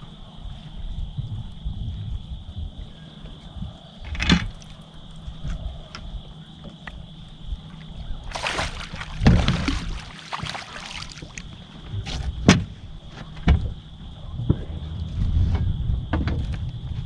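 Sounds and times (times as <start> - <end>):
fish splashing in water: 8.3 - 11.5.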